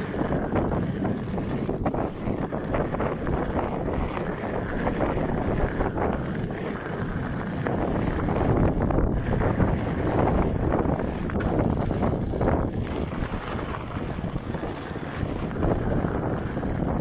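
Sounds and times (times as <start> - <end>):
tyre rolling on dirt trail: 0.0 - 17.0
wind buffeting microphone: 0.0 - 17.0.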